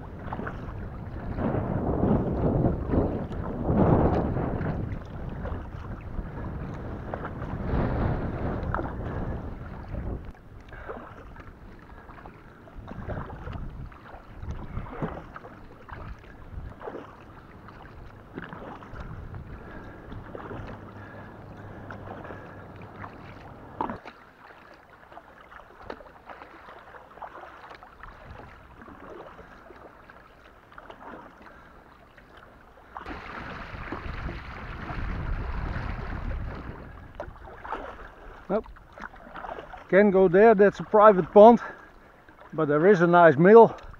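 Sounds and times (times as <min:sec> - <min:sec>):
wind on microphone: 0:00.0 - 0:24.1, 0:28.0 - 0:29.2, 0:33.0 - 0:41.6
kayak paddle splashing: 0:00.0 - 0:43.9.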